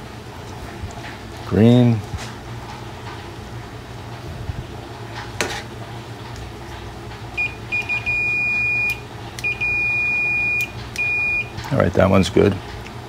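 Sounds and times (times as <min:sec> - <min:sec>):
multimeter beeps: 0:07.4 - 0:11.5.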